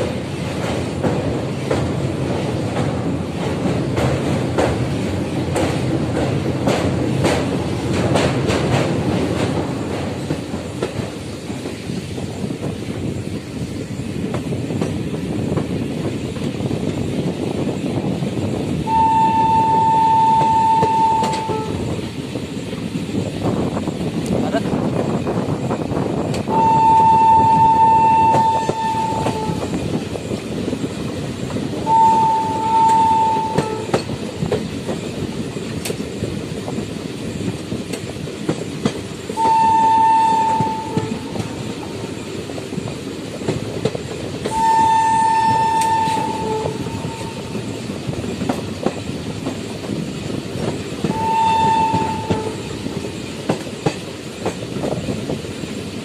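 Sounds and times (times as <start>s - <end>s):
train wheels clickety-clack: 0.0s - 56.0s
train horn blasts: 18.8s - 21.9s, 26.5s - 29.8s, 31.8s - 34.1s, 39.4s - 41.4s, 44.4s - 47.6s, 51.0s - 52.9s.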